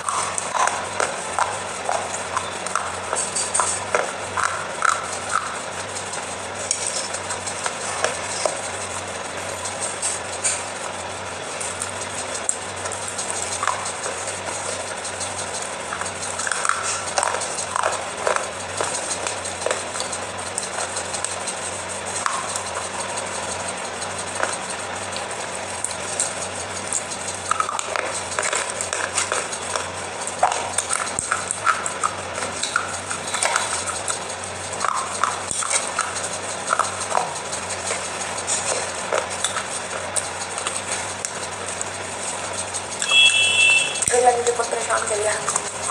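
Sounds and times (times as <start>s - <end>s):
steady hiss: 0.0s - 45.9s
sticky clicks and crackles: 11.6s - 43.1s.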